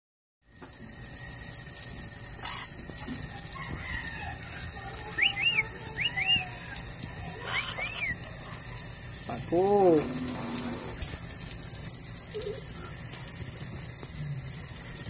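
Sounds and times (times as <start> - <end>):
water splashing on concrete: 0.8 - 15.0
parrot chirps: 2.4 - 2.8, 3.4 - 8.8.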